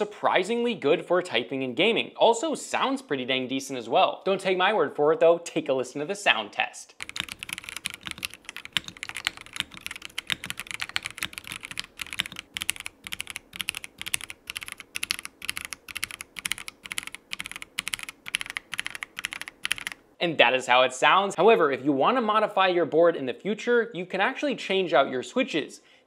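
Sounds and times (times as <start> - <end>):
mechanical keyboard typing: 7.0 - 20.0.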